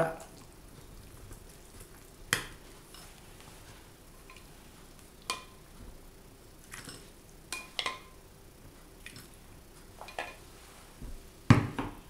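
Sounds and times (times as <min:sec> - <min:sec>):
ladle clinking against bowls: 0:06.7 - 0:08.1.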